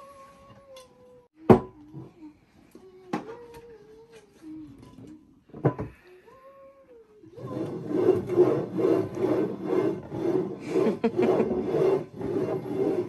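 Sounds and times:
ceramic bowls scraping on table: 0:07.4 - 0:13.0.

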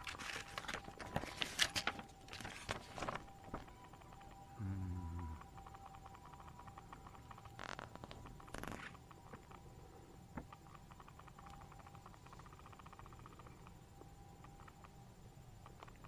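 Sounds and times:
paper rustling: 0:00.0 - 0:03.7, 0:08.5 - 0:08.9
faint hum: 0:00.0 - 0:16.0.

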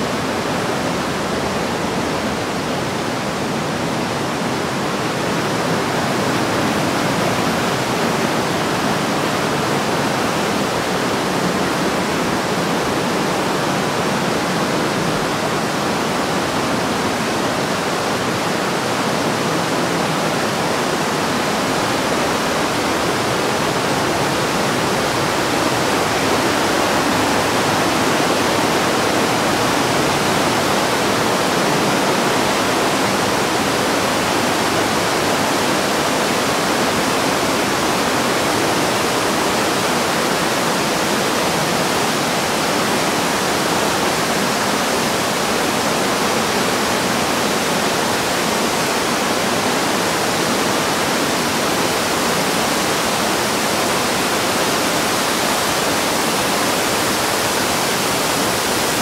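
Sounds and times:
river rushing: 0:00.0 - 0:59.0.

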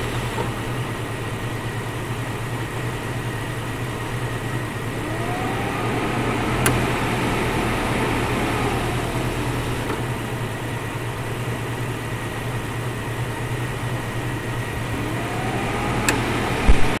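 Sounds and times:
car engine idling: 0:00.0 - 0:17.0
compressor clutch click: 0:06.4 - 0:10.2, 0:14.9 - 0:17.0.

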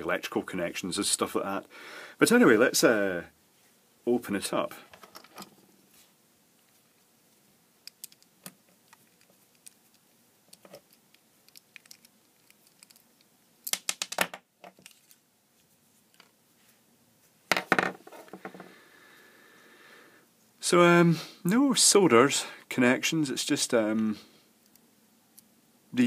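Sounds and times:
screwdriver clicking and scraping: 0:07.8 - 0:13.1.

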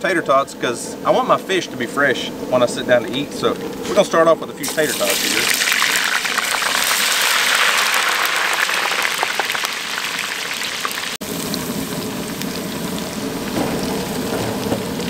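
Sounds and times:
food sizzling in deep oil: 0:03.6 - 0:15.0.

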